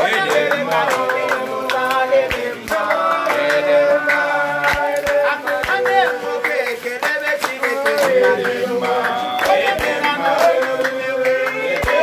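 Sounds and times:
hand clapping: 0.0 - 12.0
men singing a chant: 0.0 - 12.0.

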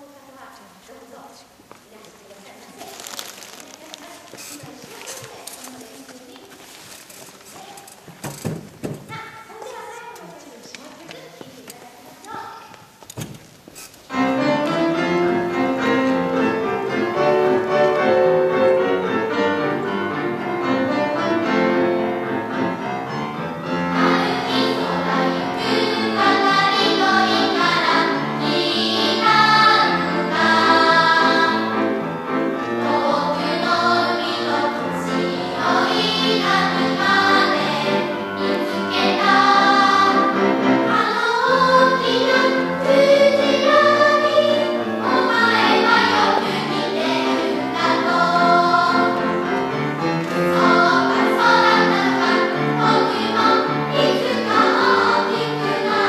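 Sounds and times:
choir singing: 14.1 - 56.0.

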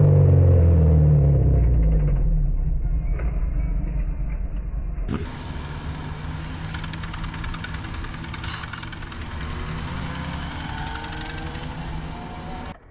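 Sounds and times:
low rumble: 0.0 - 5.3
motorcycle engines running: 5.1 - 12.8.

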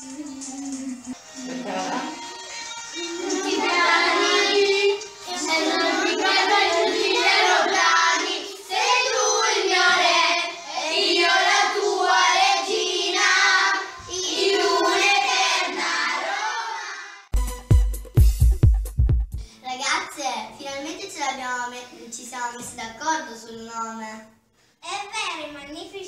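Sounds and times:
children singing in chorus: 3.0 - 17.2.

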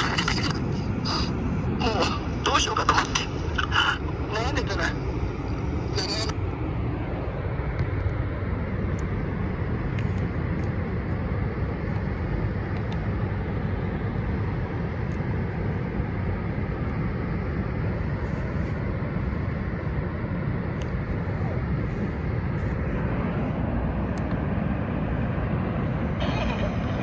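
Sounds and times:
shortwave radio static: 0.0 - 5.1, 5.8 - 6.4, 21.0 - 23.6, 26.1 - 27.0.

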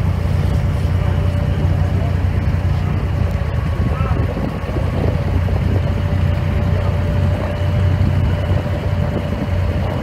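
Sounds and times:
boat engine droning: 0.0 - 10.0
water rushing past hull: 0.0 - 10.0.

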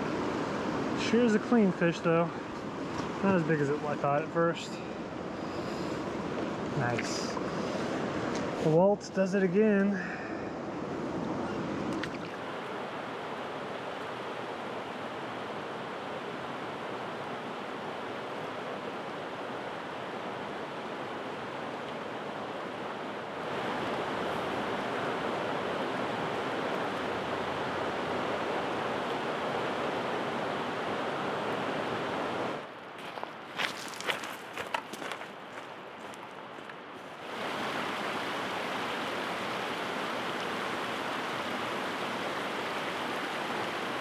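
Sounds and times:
river water rushing over rocks: 10.0 - 32.8, 36.9 - 44.0.

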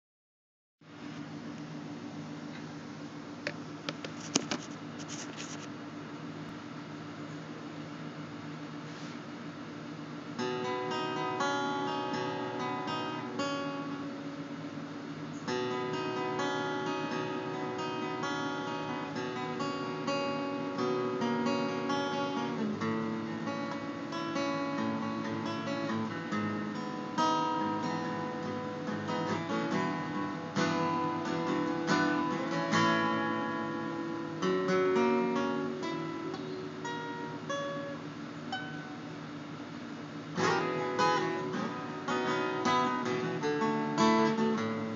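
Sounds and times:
acoustic guitar strumming chords: 10.3 - 39.3, 40.3 - 44.9.

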